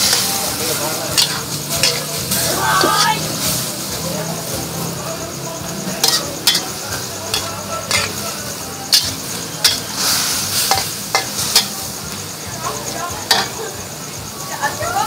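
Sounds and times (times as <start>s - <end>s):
food sizzling in a wok: 0.0s - 15.0s
metal spatula clanking on pan: 1.1s - 3.2s, 6.0s - 12.0s, 13.2s - 13.7s.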